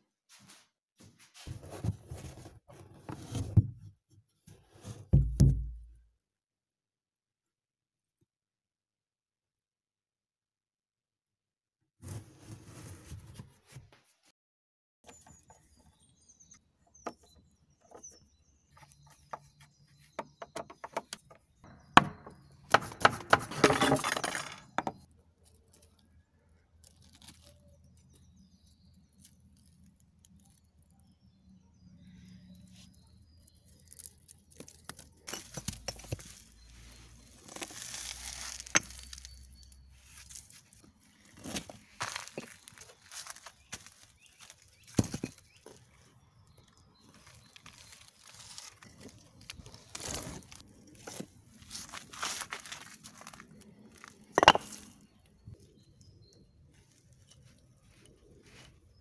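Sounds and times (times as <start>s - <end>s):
clinks and knocks of bricks: 16.9s - 25.1s, 33.6s - 45.9s, 46.6s - 56.1s
glassy rattling and scraping: 38.2s - 40.8s, 54.3s - 55.5s.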